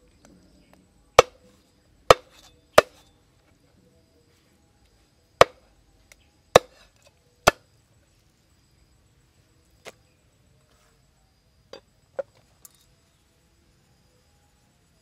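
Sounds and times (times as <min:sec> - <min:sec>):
cleaver chopping meat: 0:02.1 - 0:03.0, 0:06.5 - 0:06.8.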